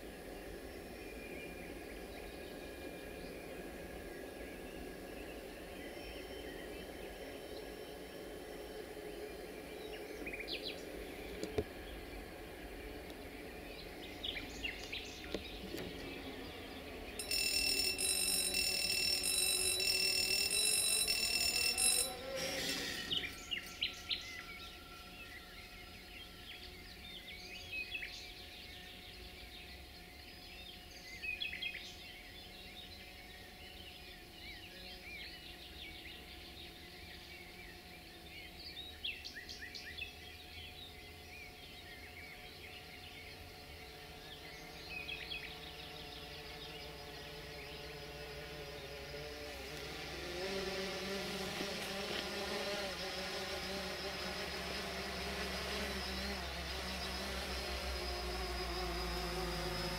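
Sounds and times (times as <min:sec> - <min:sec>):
birds chirping: 0:09.5 - 0:30.1.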